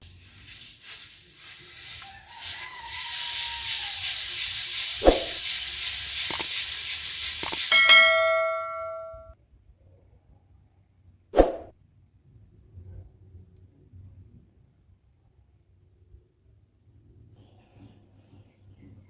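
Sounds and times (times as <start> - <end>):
grain rushing in a metal basin: 0.0 - 8.8
metal basin ringing: 7.7 - 9.4.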